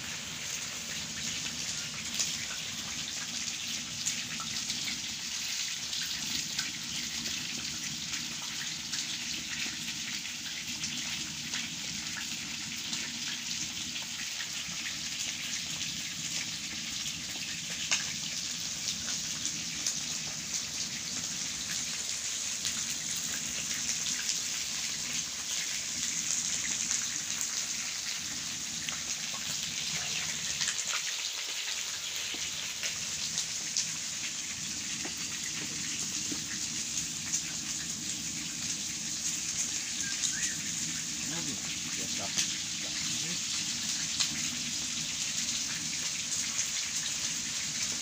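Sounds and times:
rain pattering on tent: 0.0s - 48.0s.

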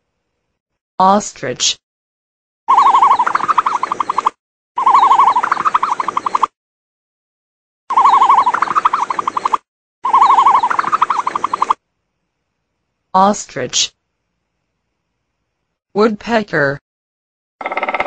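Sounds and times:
warbling animal call: 2.7s - 6.5s, 7.9s - 11.8s.

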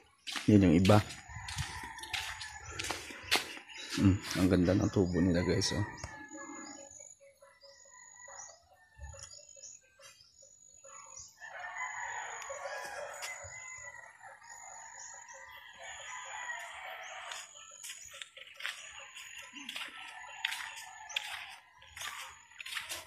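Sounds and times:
small birds chirping: 0.0s - 23.0s
rooster crowing: 0.9s - 3.0s, 4.9s - 6.8s, 11.4s - 17.7s, 19.8s - 22.7s.

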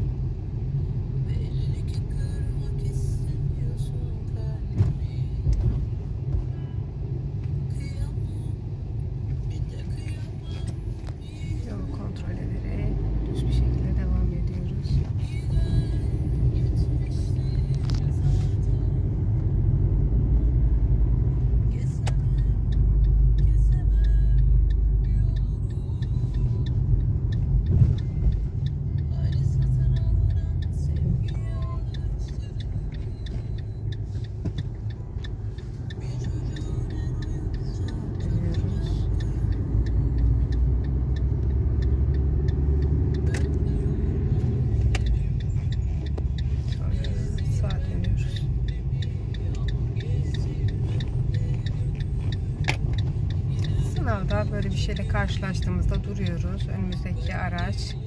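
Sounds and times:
car engine and tyre rumble: 0.0s - 58.0s
faint regular ticks: 21.5s - 57.1s.

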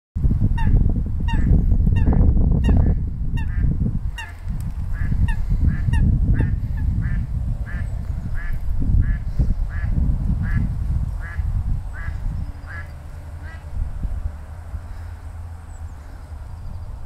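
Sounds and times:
steady low rumble: 0.2s - 17.0s
coots calling: 1.3s - 9.9s, 10.5s - 13.7s.

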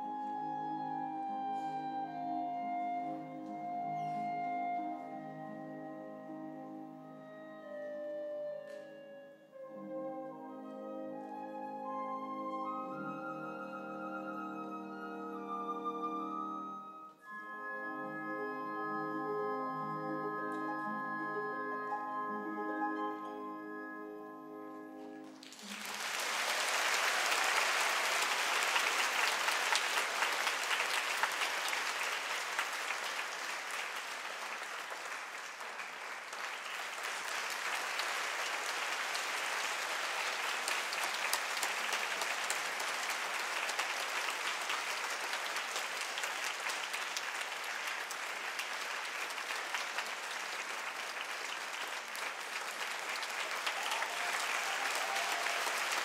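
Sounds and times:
music: 0.0s - 34.2s, 34.8s - 56.0s
audience applauding: 25.2s - 56.0s.

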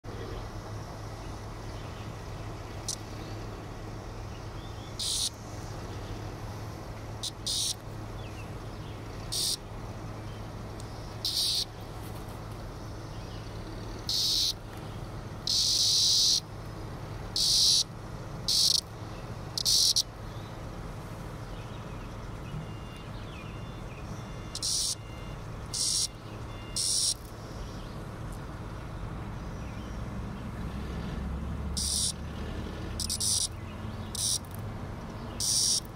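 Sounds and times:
cicada buzzing squawks: 0.1s - 9.9s, 10.8s - 11.8s, 12.7s - 14.6s, 15.4s - 16.5s, 17.3s - 20.2s, 23.6s - 27.8s, 31.7s - 32.2s, 32.9s - 34.6s, 35.3s - 35.9s.

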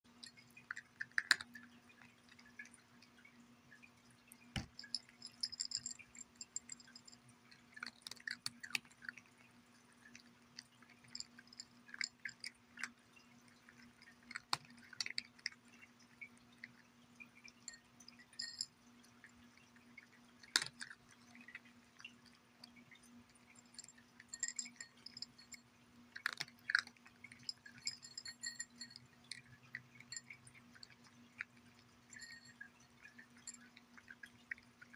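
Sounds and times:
cat crunching dry kibble: 0.3s - 2.8s, 7.6s - 16.2s, 19.9s - 21.6s, 26.1s - 28.6s.

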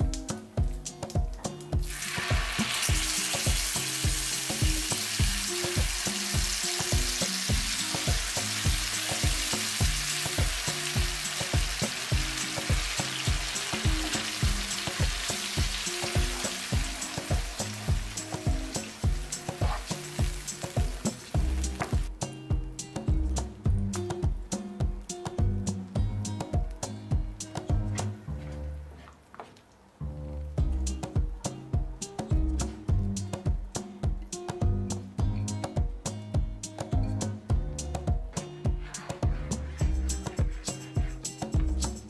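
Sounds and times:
background music with beat: 0.0s - 29.0s, 30.6s - 42.0s
marinade sizzling in hot oil: 1.8s - 22.1s.

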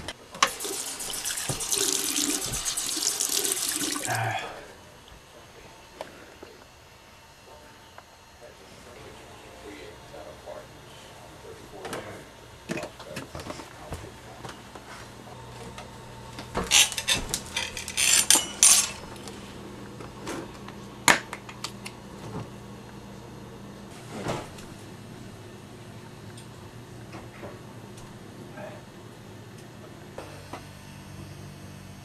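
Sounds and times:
dishes and cutlery clinking: 16.6s - 19.1s.

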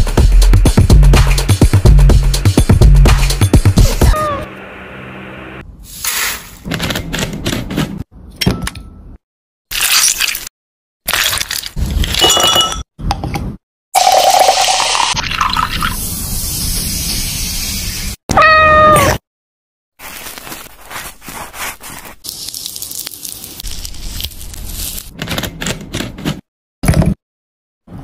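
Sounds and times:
cat meowing: 4.0s - 4.5s, 18.3s - 19.2s.

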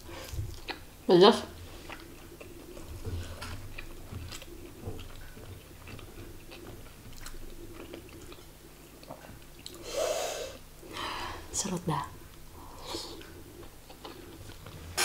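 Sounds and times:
person chewing: 0.0s - 0.9s, 1.6s - 9.9s, 12.3s - 14.9s.

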